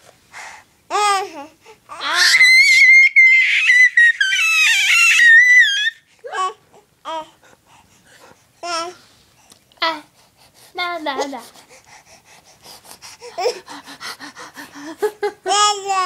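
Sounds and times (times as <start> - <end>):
baby squealing: 2.0 - 6.5
baby squeaks: 2.1 - 6.0.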